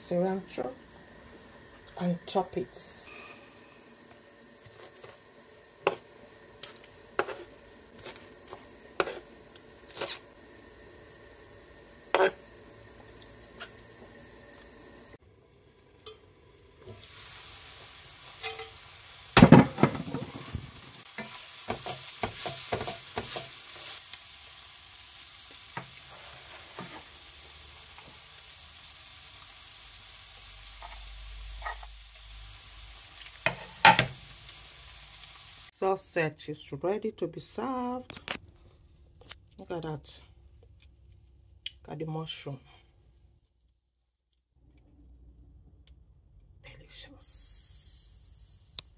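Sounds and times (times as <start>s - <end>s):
vegetables sizzling in pan: 0.0s - 36.1s
utensil knocking and scraping: 6.6s - 9.3s.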